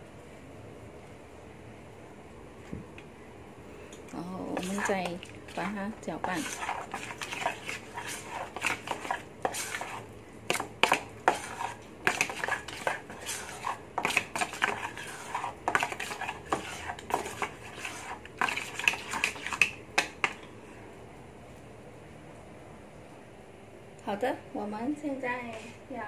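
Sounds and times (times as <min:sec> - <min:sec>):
metal spoon stirring batter in bowl: 0:04.4 - 0:20.5.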